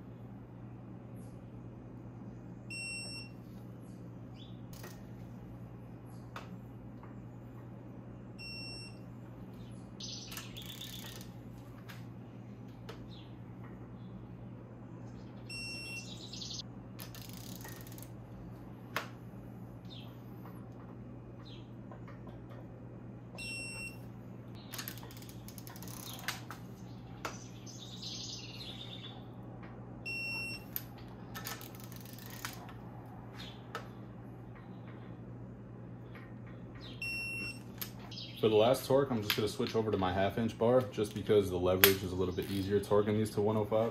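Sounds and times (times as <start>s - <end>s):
low hum: 0.0s - 43.8s
torque wrench beep: 2.7s - 3.4s, 8.4s - 9.0s, 15.5s - 16.6s, 23.4s - 24.0s, 30.1s - 30.7s, 37.0s - 37.6s
torque wrench beeping: 10.0s - 11.3s
ratchet clicks: 10.3s - 11.3s, 17.0s - 18.1s, 24.7s - 26.4s, 31.4s - 32.6s
wrench clicking and rattling: 17.0s - 18.1s, 31.4s - 32.6s.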